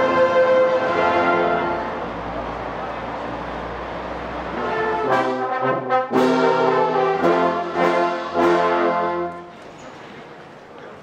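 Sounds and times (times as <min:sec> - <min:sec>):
brass instruments playing: 0:00.0 - 0:02.4, 0:04.2 - 0:09.5.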